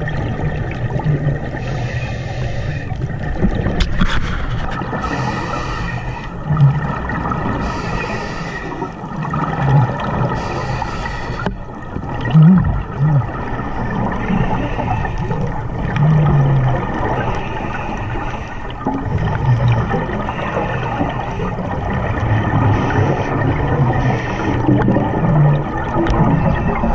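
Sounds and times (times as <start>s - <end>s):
exhaled bubbles: 0.0s - 2.2s, 2.9s - 26.9s
regulator hissing inhalations: 1.6s - 2.9s, 5.0s - 6.3s, 7.6s - 8.9s, 10.4s - 11.5s.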